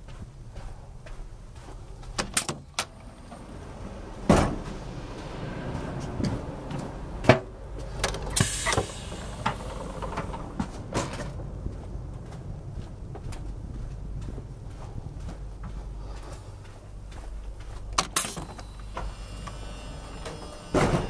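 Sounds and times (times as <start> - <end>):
footsteps: 0.0 - 21.0
low steady rumble: 0.0 - 21.0
sliding doors opening and closing: 2.0 - 13.6, 17.4 - 21.0
door clicks: 2.2 - 3.2.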